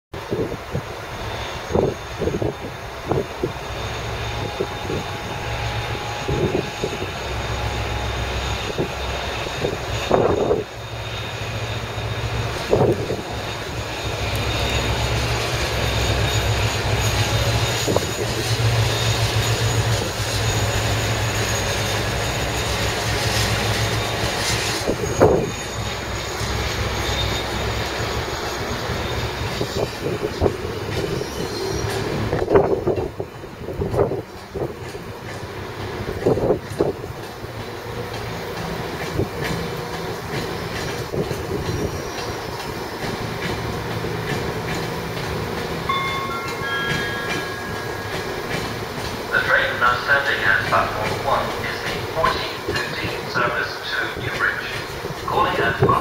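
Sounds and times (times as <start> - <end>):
diesel locomotive engine drone: 0.1 - 56.0
steady high whine: 45.8 - 54.3.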